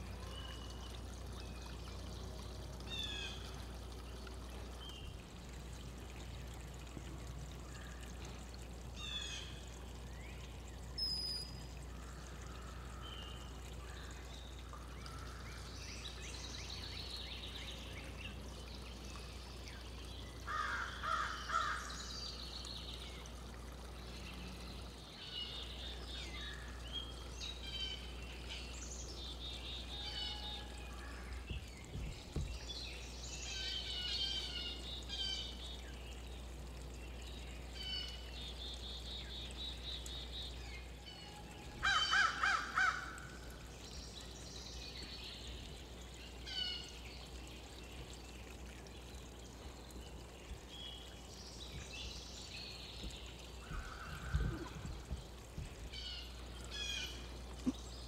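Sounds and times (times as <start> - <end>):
songbirds chirping: 0.0 - 58.0
harsh rattling bird call: 41.8 - 43.3.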